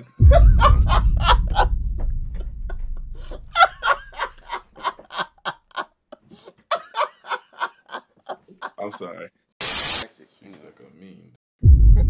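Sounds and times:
people laughing hard: 0:00.0 - 0:01.8, 0:02.4 - 0:09.0
deep low boom: 0:00.2 - 0:04.5, 0:11.6 - 0:12.0.

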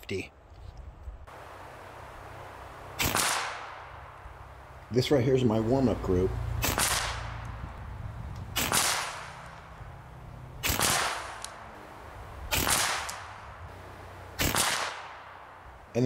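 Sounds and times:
air rifle shots cracking: 0:02.9 - 0:04.3, 0:06.6 - 0:07.6, 0:08.4 - 0:09.8, 0:10.5 - 0:15.6.

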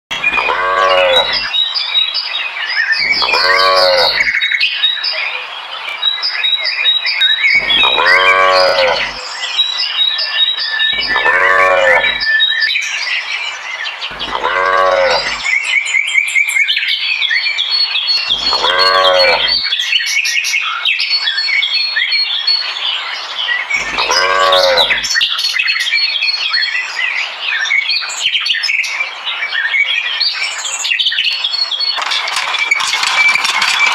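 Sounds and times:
cows mooing: 0:00.1 - 0:01.5, 0:03.0 - 0:04.3, 0:07.6 - 0:09.3, 0:11.0 - 0:12.3, 0:14.1 - 0:15.5, 0:18.3 - 0:19.7, 0:23.8 - 0:25.1
small birds chirping: 0:00.1 - 0:02.2, 0:02.9 - 0:04.7, 0:05.9 - 0:12.5, 0:13.9 - 0:16.0, 0:17.6 - 0:20.1, 0:23.6 - 0:25.4.

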